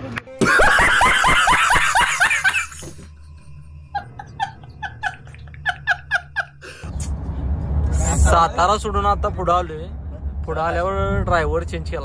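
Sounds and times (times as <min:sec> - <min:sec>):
man laughing hysterically: 0:00.4 - 0:03.0, 0:03.9 - 0:06.9.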